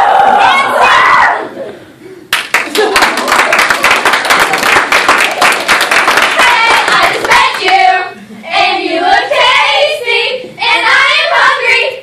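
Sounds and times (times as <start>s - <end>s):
young voices singing together: 5.9s - 12.0s.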